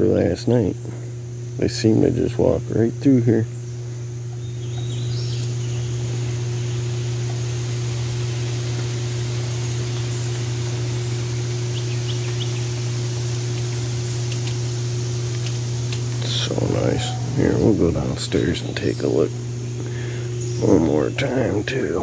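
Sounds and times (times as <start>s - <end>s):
low machine hum: 0.0s - 22.0s
constant high tone: 16.2s - 22.0s.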